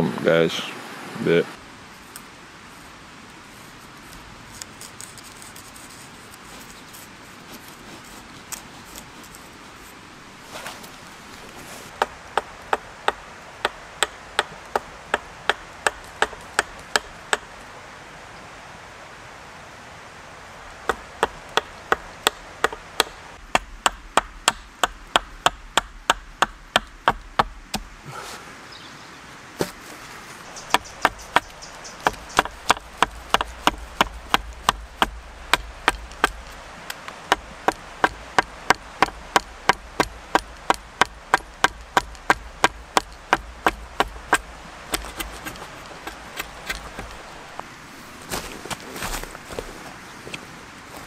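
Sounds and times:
hatchet chopping wood: 0:11.9 - 0:17.5, 0:20.8 - 0:27.9, 0:30.6 - 0:47.3.

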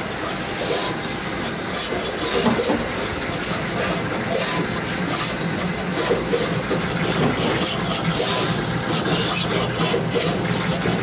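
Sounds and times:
machinery humming: 0:00.0 - 0:11.0.

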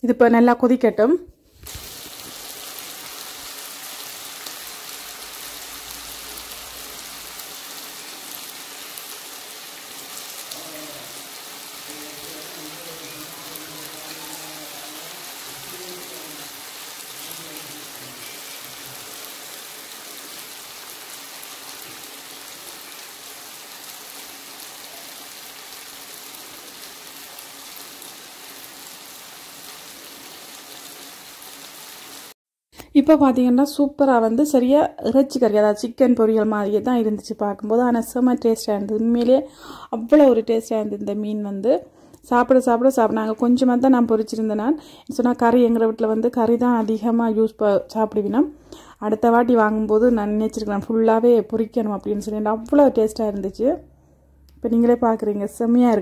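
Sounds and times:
fish deep-frying in oil: 0:01.6 - 0:32.4.

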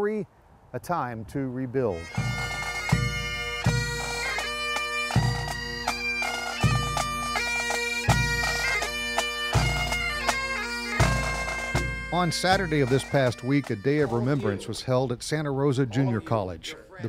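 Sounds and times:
bagpipes playing over drones: 0:02.0 - 0:14.8.

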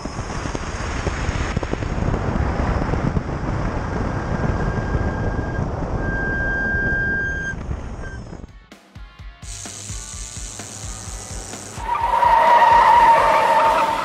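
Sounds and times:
wind buffeting microphone: 0:00.0 - 0:08.5
tyre and road roar: 0:00.0 - 0:08.7, 0:09.5 - 0:14.0.

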